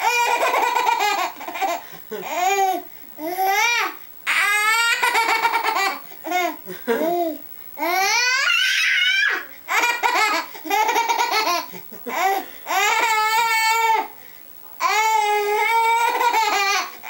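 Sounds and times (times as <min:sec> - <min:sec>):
baby laughing: 0:00.0 - 0:03.6, 0:04.7 - 0:07.4, 0:09.7 - 0:13.5, 0:15.8 - 0:16.9.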